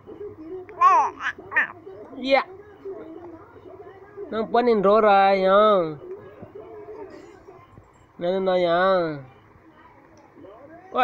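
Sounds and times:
faint voice murmuring: 0.0s - 4.4s.

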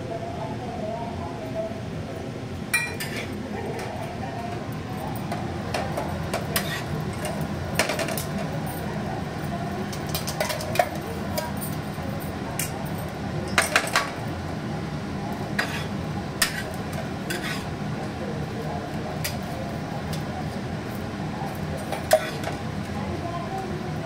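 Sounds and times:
metal spatula scraping griddle: 6.5s - 7.3s, 15.6s - 17.8s, 21.9s - 22.6s.

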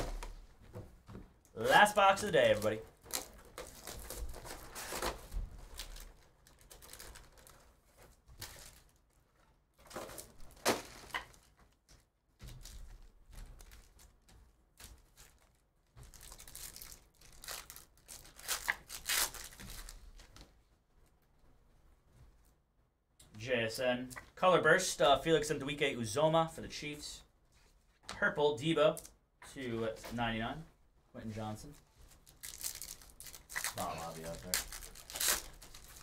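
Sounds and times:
plastic wrap crinkling and tearing: 1.6s - 9.2s, 12.5s - 20.2s, 31.7s - 36.0s
foil pack tearing open: 32.4s - 36.0s.

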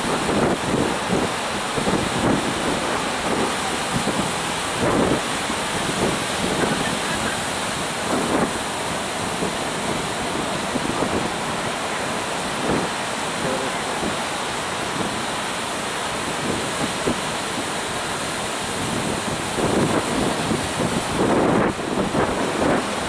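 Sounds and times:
sea surf breaking: 0.0s - 23.0s
wind buffeting microphone: 0.0s - 23.0s.

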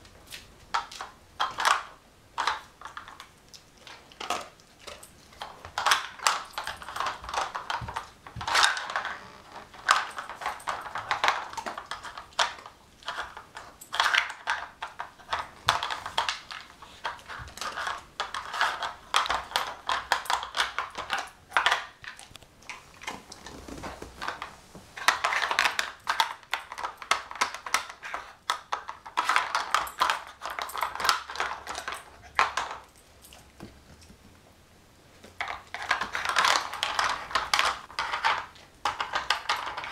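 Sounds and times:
plastic puzzle pieces clattering: 3.9s - 22.4s, 24.2s - 32.8s, 35.4s - 39.9s.

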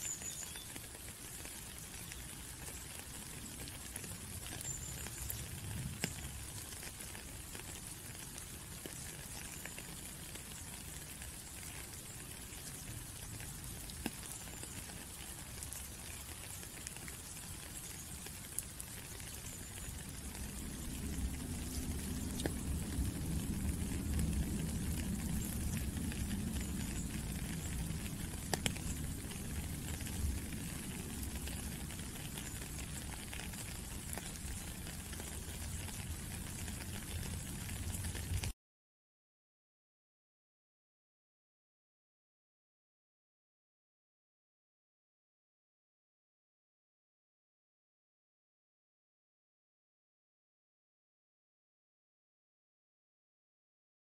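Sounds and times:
sharp drips: 0.0s - 38.5s
rain falling on puddle and gravel: 0.0s - 38.6s
low rumble: 20.0s - 31.7s.

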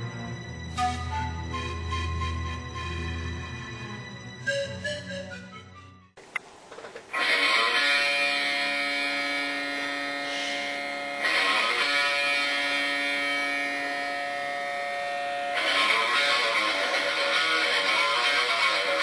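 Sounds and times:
electric guitar chords ringing: 7.2s - 19.0s.

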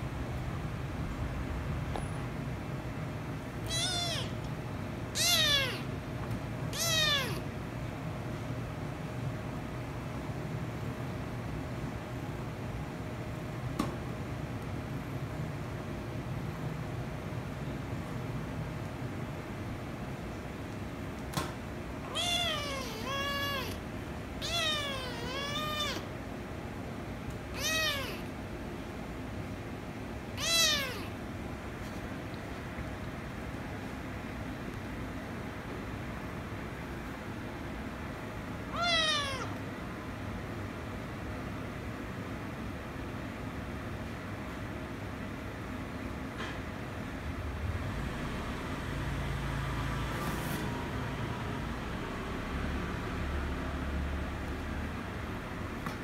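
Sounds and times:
steady low hum: 0.0s - 46.2s
kitten meowing: 3.6s - 4.5s, 5.1s - 5.9s, 6.7s - 7.5s, 22.0s - 23.8s, 24.4s - 26.1s, 27.5s - 28.3s, 30.4s - 31.2s, 38.7s - 39.6s.

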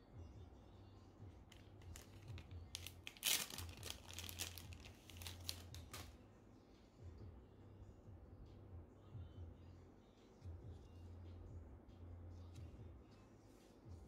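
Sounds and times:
plastic bag crinkling: 1.8s - 6.1s.

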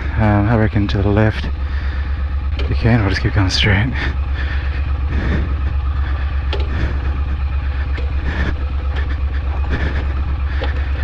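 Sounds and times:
motorcycle engine at low revs: 0.0s - 11.0s
sharp knocks: 6.4s - 7.3s.

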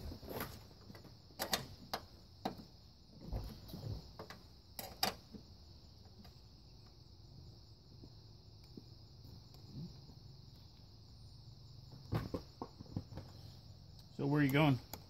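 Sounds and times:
high insect hiss: 0.0s - 15.0s.

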